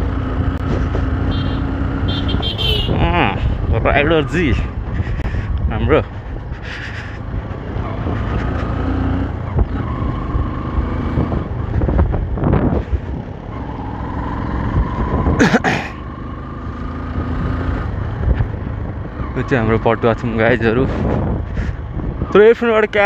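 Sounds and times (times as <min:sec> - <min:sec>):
motorcycle engine running: 0:00.0 - 0:23.0
wind rumble on microphone: 0:02.7 - 0:08.7, 0:09.3 - 0:13.7, 0:14.6 - 0:15.6, 0:17.4 - 0:19.6, 0:20.2 - 0:23.0.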